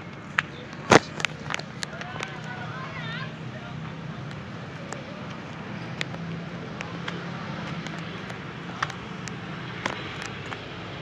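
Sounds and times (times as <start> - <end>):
outdoor background noise: 0.0 - 11.0.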